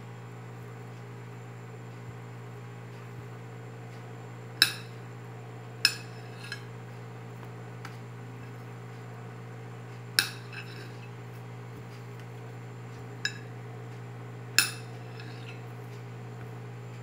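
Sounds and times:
steady low hum: 0.0s - 17.0s
knife clinking on ceramic plate: 4.6s - 5.0s, 5.9s - 6.7s, 10.2s - 11.0s, 13.3s - 13.5s, 14.6s - 15.6s.

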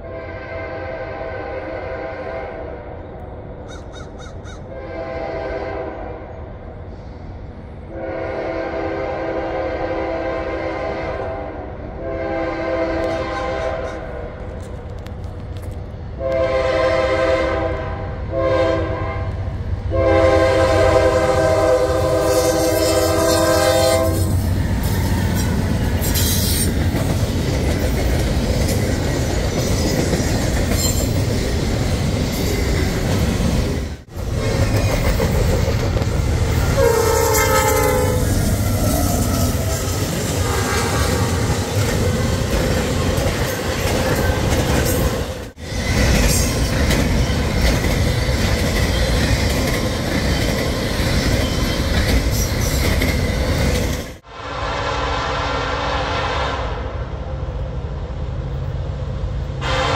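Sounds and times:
train air horn blasts: 0.0s - 2.9s, 4.7s - 6.4s, 7.9s - 14.4s, 16.2s - 26.7s, 36.7s - 41.3s, 54.2s - 57.1s, 59.6s - 59.9s
train passing with rumble: 0.0s - 59.9s.

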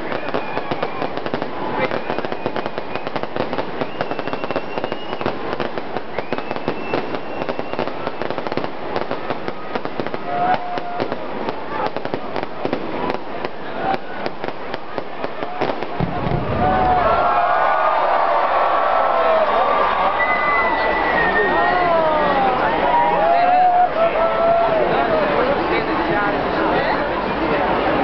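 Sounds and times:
firework whistles: 0.0s - 11.2s
fireworks crackling: 0.0s - 18.3s.

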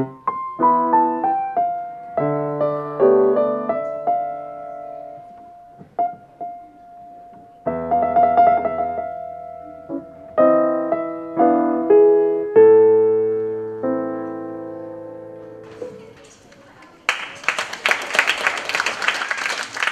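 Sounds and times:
grand piano chords: 0.0s - 16.2s.

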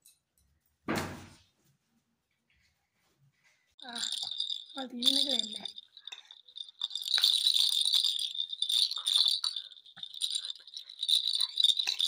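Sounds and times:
small metal bells jingling: 3.8s - 12.0s.

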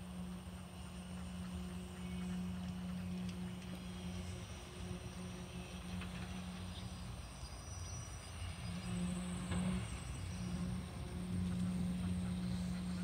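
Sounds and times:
engine running with low hum: 0.0s - 13.0s.

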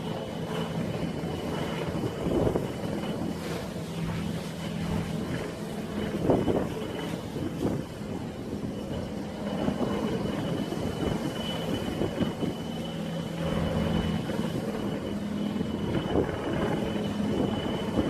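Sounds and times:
helicopter turbine whine: 0.0s - 18.0s
low steady drone: 0.0s - 18.0s
wind buffeting microphone: 0.0s - 18.0s.

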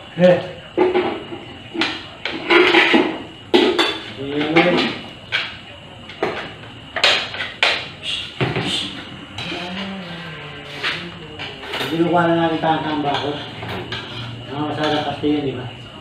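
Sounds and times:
cutlery clinking on plates: 0.8s - 9.9s, 10.8s - 15.2s
people talking: 4.1s - 6.6s, 7.9s - 13.6s, 14.5s - 16.0s.

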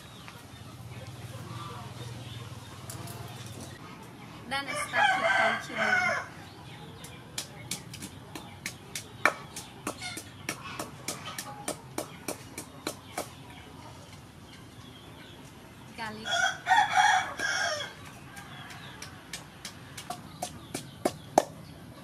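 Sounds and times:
rooster crowing: 4.7s - 6.3s, 16.3s - 19.0s
pestle pounding in wooden mortar: 7.3s - 13.4s, 17.4s - 21.6s.

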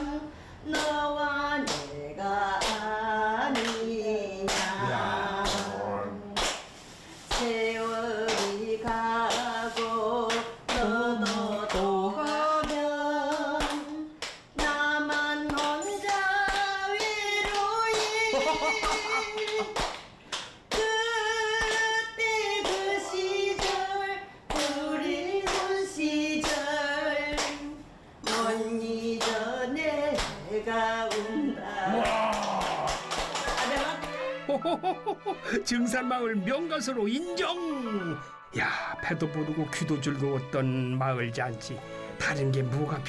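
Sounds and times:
woman singing unaccompanied: 0.0s - 6.4s, 7.3s - 19.8s, 20.7s - 32.1s
group clapping on the beat: 0.7s - 22.9s, 23.6s - 28.6s, 29.2s - 31.3s, 31.9s - 34.4s.

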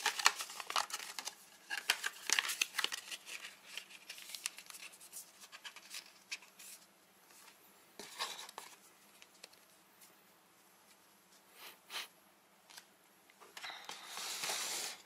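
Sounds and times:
cardboard box and paper rustling: 0.0s - 6.8s.

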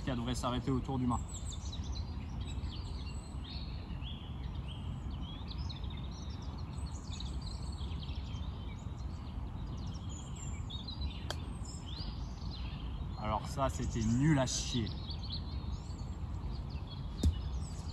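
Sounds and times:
small birds chirping: 0.0s - 17.9s.

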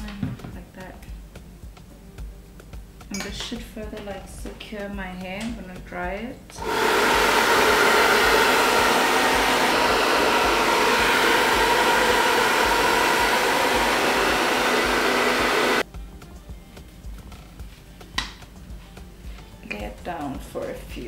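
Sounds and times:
hair dryer blowing: 6.6s - 15.8s.

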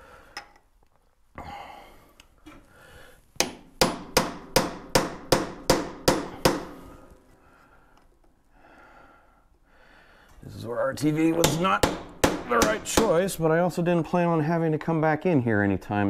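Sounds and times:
hammer striking metal chisel: 3.4s - 6.9s, 11.3s - 13.2s.

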